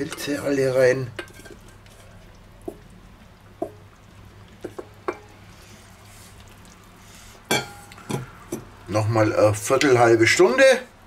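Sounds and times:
wooden spatula knocking on a bowl: 2.6s - 2.8s, 3.6s - 3.8s, 4.6s - 5.3s.

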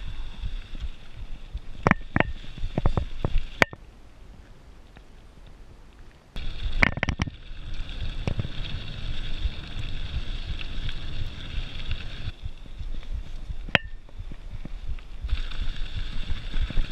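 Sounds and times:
bike rattling: 0.0s - 3.8s, 6.4s - 16.9s
wind on microphone: 0.0s - 5.8s, 6.4s - 16.9s
tyre rumble over dirt: 6.4s - 16.9s.

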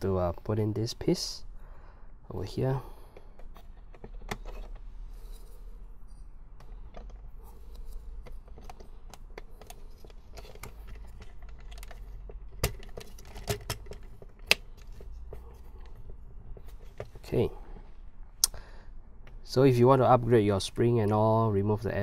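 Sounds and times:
hard plastic parts clicking: 3.1s - 4.9s, 6.6s - 17.2s.

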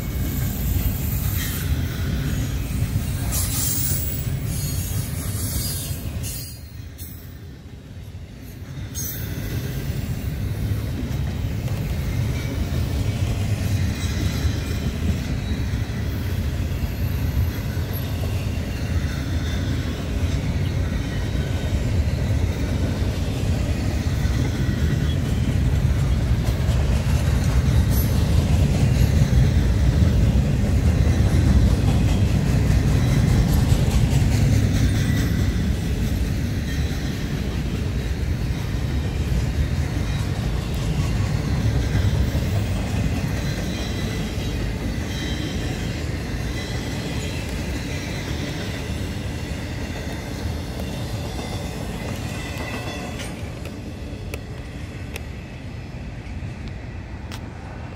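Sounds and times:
faint high-pitched wheel squeals: 0.0s - 10.8s, 11.9s - 22.8s, 36.6s - 54.2s
steel wheels rumbling on rail: 0.0s - 57.9s.

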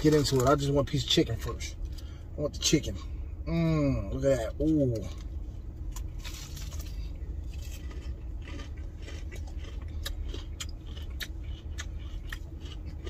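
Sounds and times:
steady low hum: 0.0s - 13.0s
crunchy chicken crackling: 5.9s - 13.0s.

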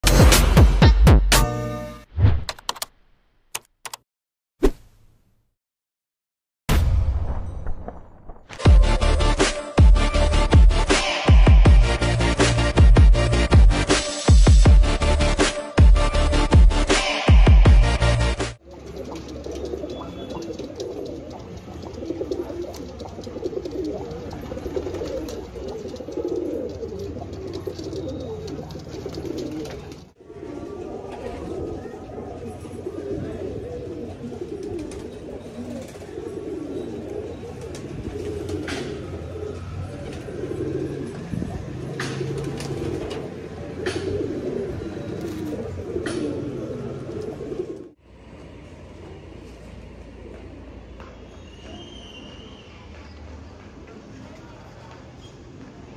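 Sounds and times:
pigeons cooing: 18.7s - 48.0s.

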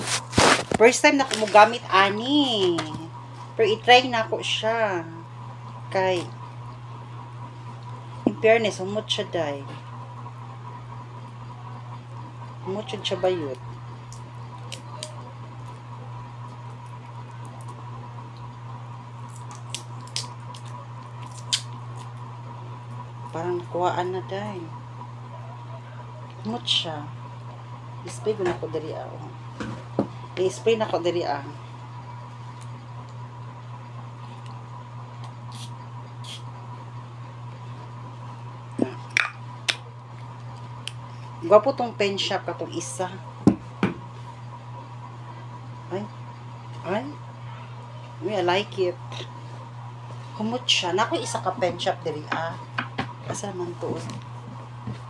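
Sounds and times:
plastic bag rustling: 0.0s - 1.8s
low room hum: 0.0s - 55.0s.

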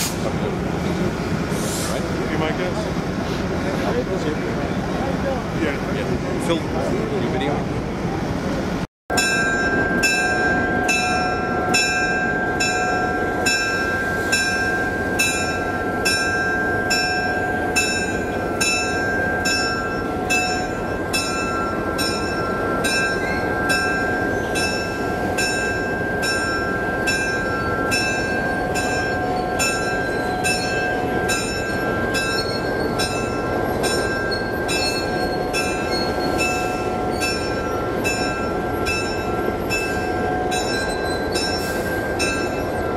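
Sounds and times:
diesel locomotive running: 0.0s - 42.9s
locomotive bell ringing: 9.1s - 42.9s.

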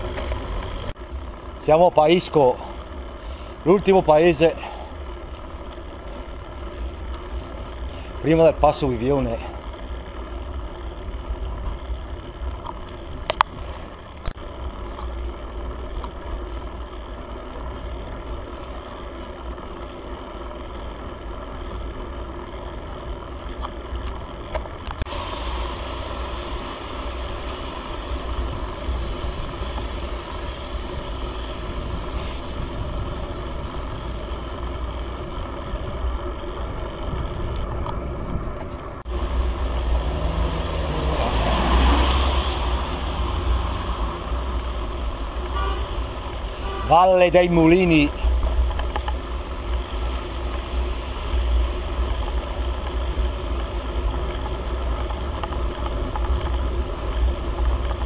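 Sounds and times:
road noise hiss: 0.0s - 58.0s
vehicle engine running under load: 0.0s - 58.0s.

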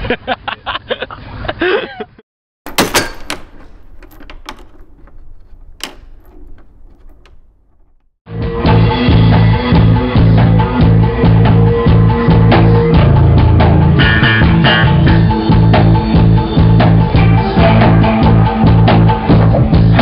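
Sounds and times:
clicks and knocks: 2.7s - 8.1s.

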